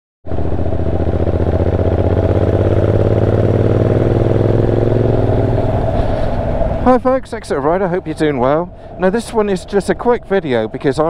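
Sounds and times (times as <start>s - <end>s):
motorcycle engine running: 0.2s - 7.1s.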